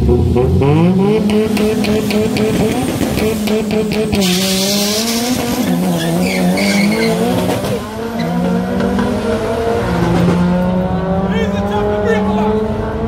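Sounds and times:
race car engines revving: 0:00.0 - 0:13.0
tyre squeal: 0:04.1 - 0:07.5.

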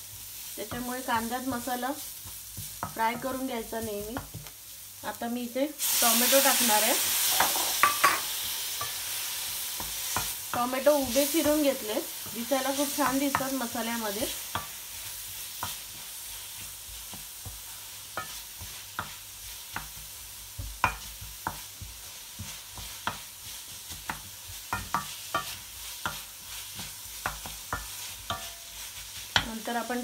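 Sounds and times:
vegetables sizzling in oil: 0:00.0 - 0:30.0
spatula knocking against pan: 0:17.1 - 0:23.3, 0:23.9 - 0:28.6.

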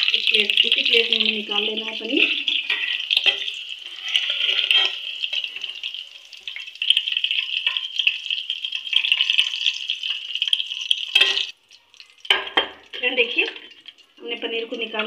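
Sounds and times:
food sizzling in hot oil: 0:00.0 - 0:15.0
metal spoon scraping a pan: 0:02.0 - 0:05.9, 0:08.7 - 0:11.5.

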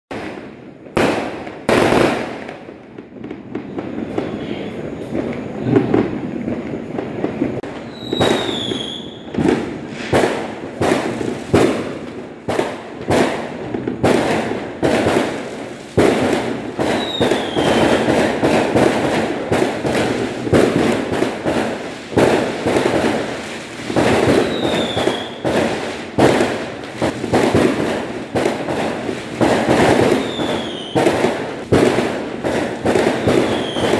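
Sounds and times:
fireworks bangs and crackling: 0:00.1 - 0:33.9.

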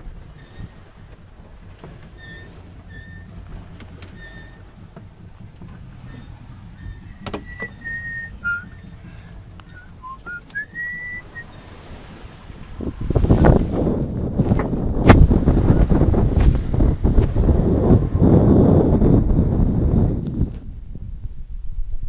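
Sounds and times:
steady low rumble: 0:00.0 - 0:22.0
high whistling tones: 0:06.0 - 0:09.0, 0:09.6 - 0:11.6.

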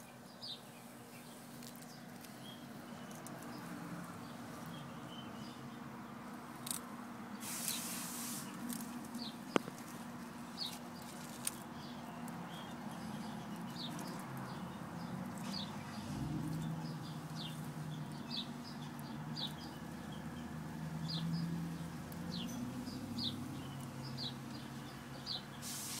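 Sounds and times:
bird chirping: 0:00.0 - 0:06.2, 0:10.4 - 0:25.8
tortoise biting leaves: 0:06.5 - 0:25.8.

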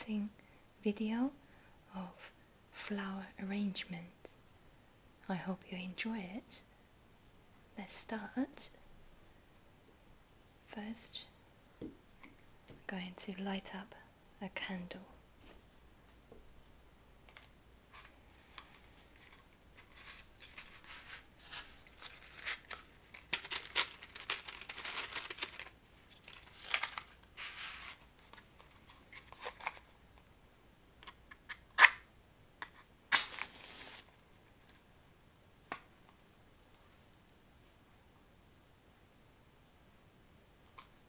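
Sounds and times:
matchbox rustling and clicking: 0:17.3 - 0:29.9.

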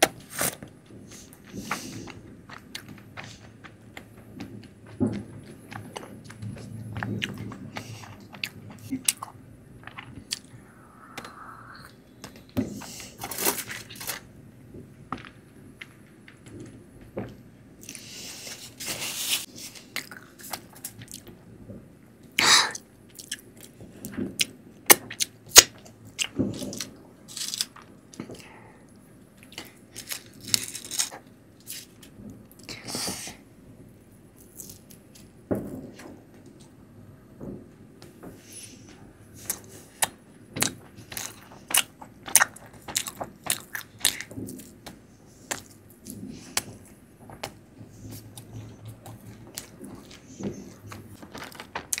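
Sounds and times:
chewing and wet mouth sounds: 0:00.2 - 0:13.3, 0:19.8 - 0:21.3, 0:22.3 - 0:23.8, 0:39.4 - 0:52.0.

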